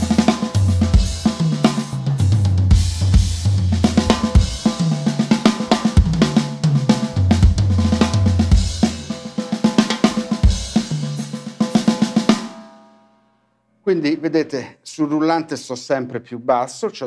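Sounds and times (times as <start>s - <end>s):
drum kit playing: 0.0s - 13.0s.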